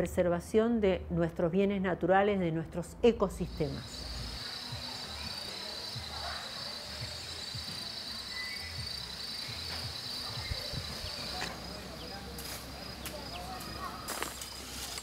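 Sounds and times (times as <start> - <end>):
insects buzzing: 3.4 - 15.0.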